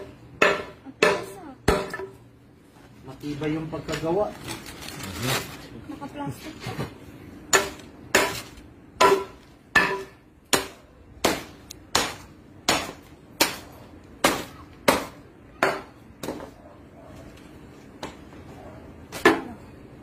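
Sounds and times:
statue smashed on concrete: 7.5 - 13.6.

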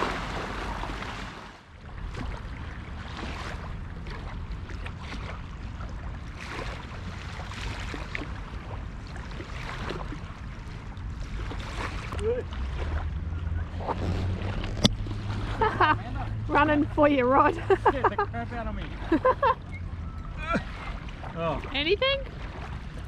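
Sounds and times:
wind rumble on microphone: 0.0 - 17.8
small waves lapping on shore: 0.0 - 23.0.

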